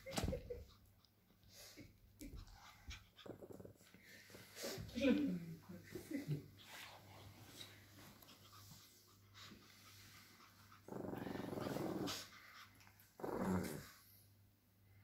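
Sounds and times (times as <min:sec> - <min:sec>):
puppy growling: 0:02.2 - 0:04.4, 0:10.5 - 0:14.2.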